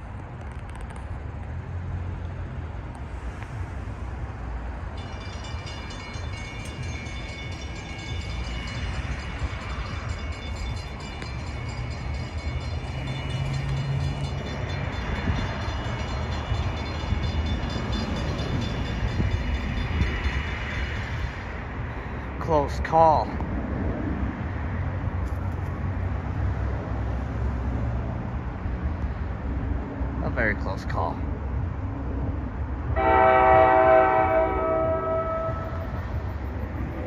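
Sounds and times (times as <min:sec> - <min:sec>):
low rumble of train: 0:00.0 - 0:37.0
railroad crossing bell ringing: 0:04.8 - 0:21.7, 0:33.0 - 0:37.0.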